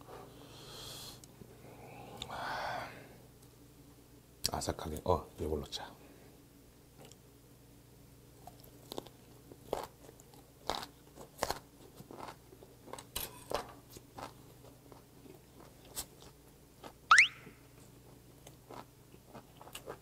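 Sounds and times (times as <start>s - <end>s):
crunchy chewing: 8.4s - 20.0s
rising whistle sound effect: 17.1s - 17.5s.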